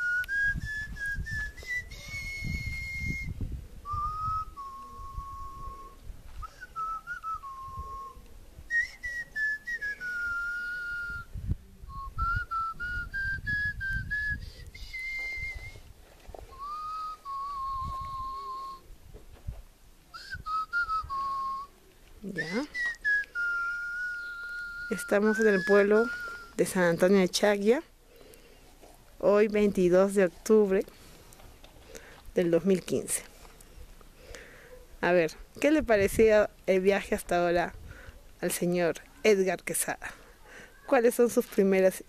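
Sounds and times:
person whistling a tune: 0.0s - 15.9s, 16.5s - 18.8s, 20.1s - 26.6s.

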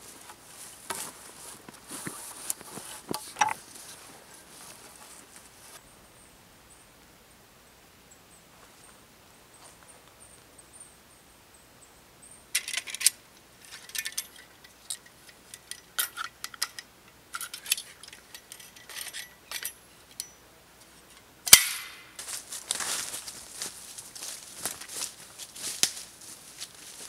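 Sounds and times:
loud sharp snap: 21.5s - 22.1s.

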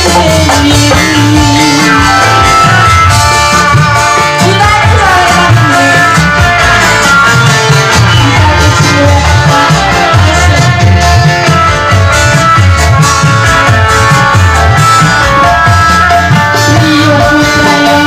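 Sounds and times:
woman singing into a microphone: 0.0s - 11.7s, 16.2s - 18.0s
amplified live band music: 0.0s - 18.0s.

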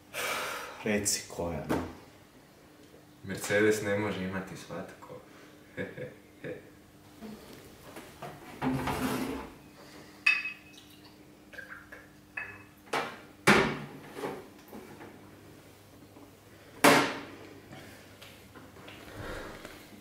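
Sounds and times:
glass clinking: 10.2s - 10.9s, 12.4s - 12.7s
liquid pouring into glasses: 10.3s - 12.7s.

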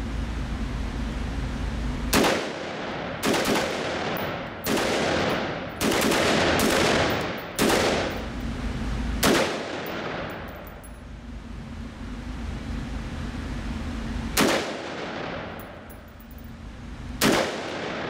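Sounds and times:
rifle shots echoing indoors: 2.1s - 8.3s, 9.2s - 10.9s, 14.4s - 16.2s, 17.2s - 18.0s.

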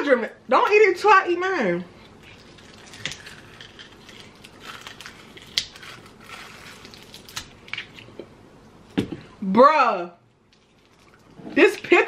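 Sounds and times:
freeze pops crunching and crackling: 2.1s - 8.2s.

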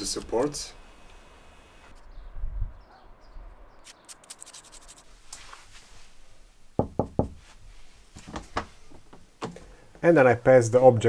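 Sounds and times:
knocking on a wooden door: 6.8s - 7.4s.

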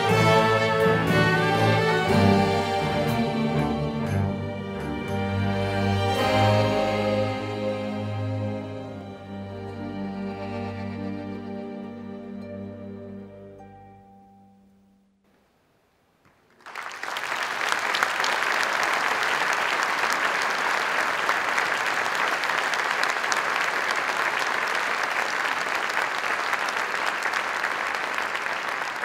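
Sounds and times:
orchestra chord: 0.0s - 14.9s
audience applause: 16.4s - 29.0s.

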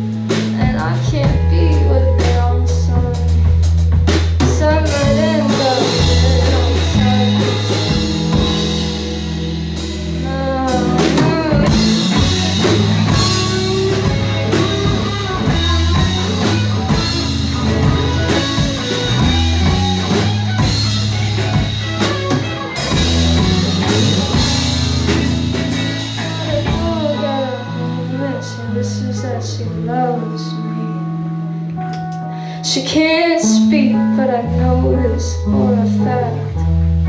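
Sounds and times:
drum kit steady beat: 0.0s - 28.2s
electric bass: 0.0s - 37.0s
electric guitars: 0.0s - 37.0s.

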